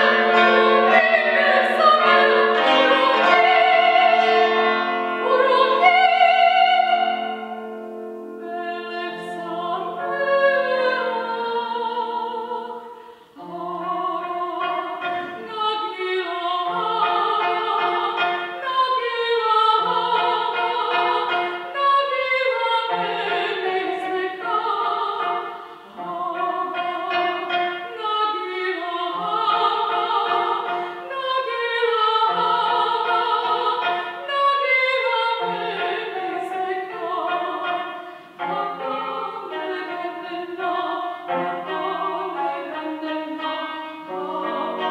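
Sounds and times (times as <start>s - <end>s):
operatic soprano singing: 0.0s - 44.9s.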